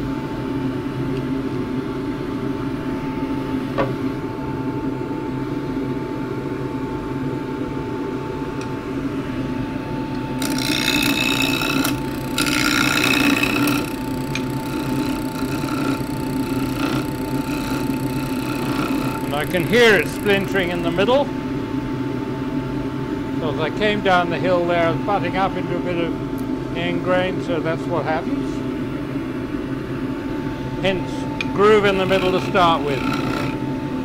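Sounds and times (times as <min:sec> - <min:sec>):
wood lathe humming: 0:09.1 - 0:21.3, 0:30.8 - 0:34.0
chisel cutting spinning wood: 0:10.3 - 0:21.2, 0:30.8 - 0:33.7.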